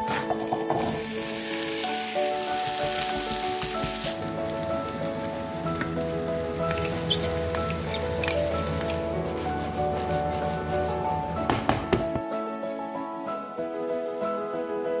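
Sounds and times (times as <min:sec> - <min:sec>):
background music with held notes: 0:00.0 - 0:15.0
vegetables sizzling in a frying pan: 0:00.4 - 0:09.8.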